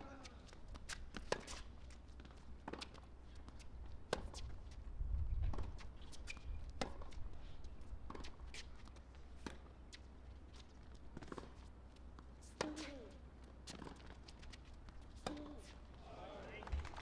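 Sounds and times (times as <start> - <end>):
tennis ball bouncing: 0.8 - 4.4, 5.5 - 7.2, 8.1 - 9.8, 11.1 - 15.8
tennis racket striking ball: 6.8 - 7.1, 15.2 - 15.7.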